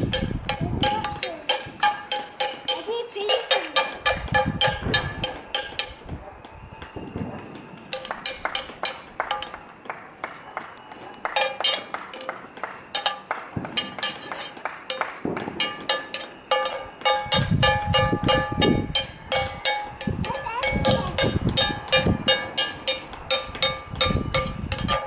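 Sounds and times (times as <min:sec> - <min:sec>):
spoon beating metal pan: 0:00.0 - 0:06.0, 0:11.4 - 0:12.3, 0:12.9 - 0:25.0.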